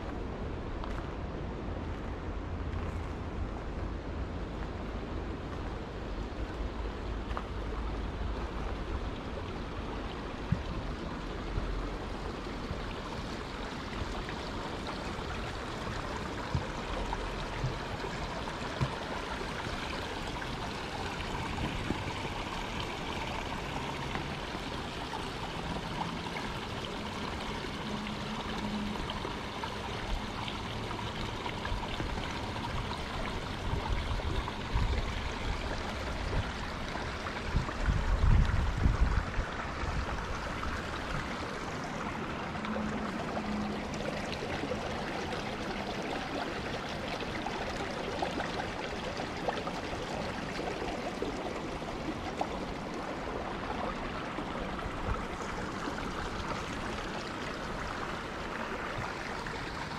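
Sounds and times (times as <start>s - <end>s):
gusts buffeting microphone: 37.4s - 41.4s.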